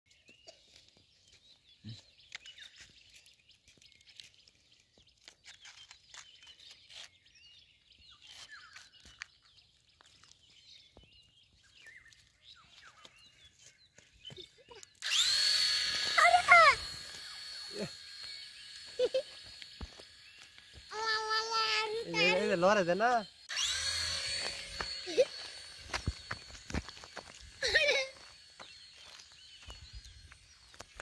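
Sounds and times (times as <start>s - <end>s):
faint birds chirping: 0.1s - 15.1s, 16.2s - 23.5s, 24.5s - 31.0s
small electric motor whine: 1.6s - 31.0s.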